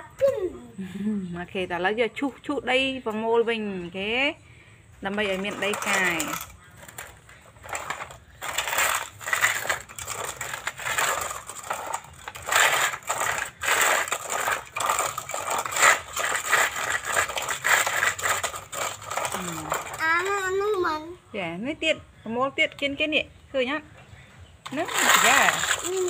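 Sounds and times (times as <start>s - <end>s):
toy wheels scraping sand: 5.1s - 20.6s, 24.6s - 26.0s.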